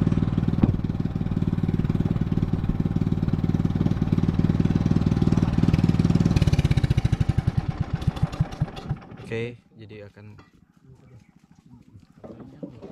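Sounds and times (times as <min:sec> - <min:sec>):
boat engine running: 0:00.0 - 0:09.6.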